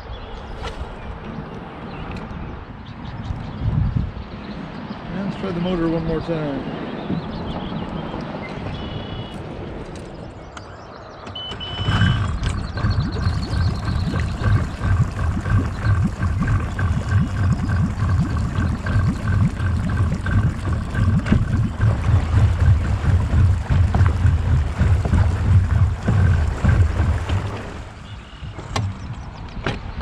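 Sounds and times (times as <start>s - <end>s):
short electronic beep: 11.4s - 12.4s
electric trolling motor whine: 11.4s - 29.3s
low uneven rumble: 11.9s - 29.5s.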